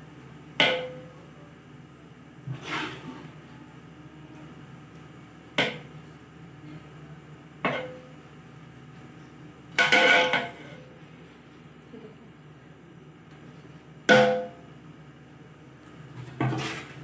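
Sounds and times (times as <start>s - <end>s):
spoon knocking on metal pot: 0.6s - 1.0s, 14.1s - 14.6s
scraping clatter in pot: 2.4s - 3.3s, 9.8s - 10.9s, 16.1s - 17.0s.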